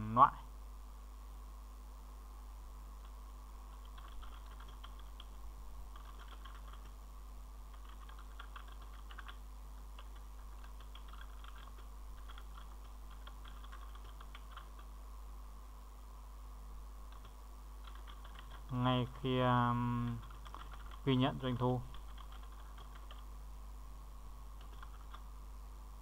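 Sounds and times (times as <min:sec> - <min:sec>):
faint low hum: 0:00.0 - 0:26.0
computer keyboard typing: 0:03.0 - 0:07.0, 0:07.7 - 0:14.9, 0:17.1 - 0:18.8, 0:20.1 - 0:23.3, 0:24.6 - 0:25.2.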